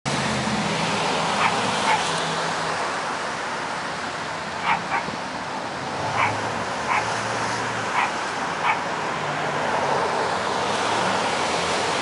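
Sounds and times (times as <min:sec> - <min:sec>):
small dog yapping: 0:01.4 - 0:02.1, 0:04.6 - 0:05.1, 0:06.2 - 0:07.1, 0:07.9 - 0:08.8.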